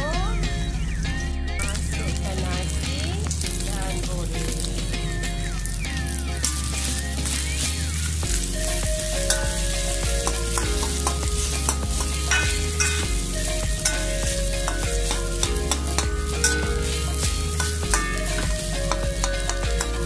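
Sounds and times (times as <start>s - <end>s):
rice sizzling in a wok: 1.6s - 20.0s
metal spatula scraping a pan: 6.1s - 20.0s.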